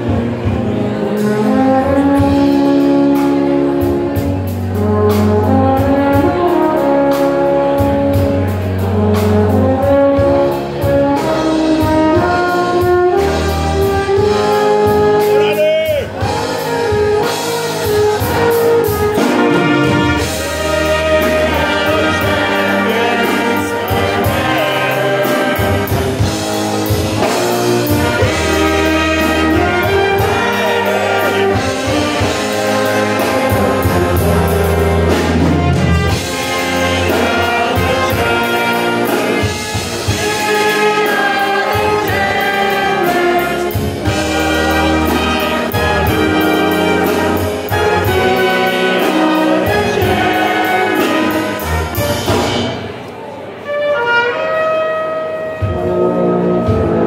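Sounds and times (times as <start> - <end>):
drum kit beat: 0.0 - 53.1
brass band playing rock: 0.0 - 57.0.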